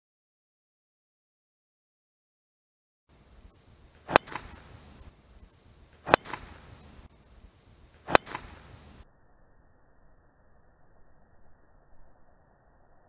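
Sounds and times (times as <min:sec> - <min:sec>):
golf driver striking ball: 0:04.0 - 0:05.1, 0:06.0 - 0:07.1, 0:08.0 - 0:08.9.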